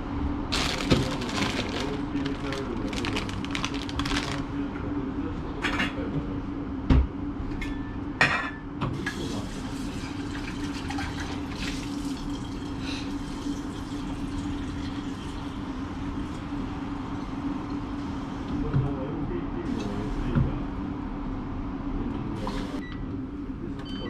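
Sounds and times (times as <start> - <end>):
steady low hum: 0.0 - 7.4
tap water filling pot: 9.0 - 15.5.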